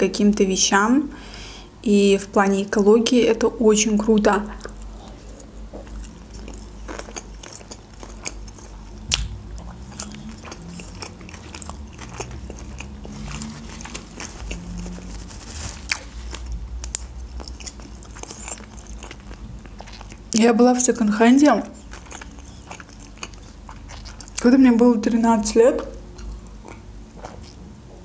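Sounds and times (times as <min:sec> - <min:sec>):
person chewing food: 0:04.6 - 0:20.4, 0:21.4 - 0:24.5, 0:25.8 - 0:27.6.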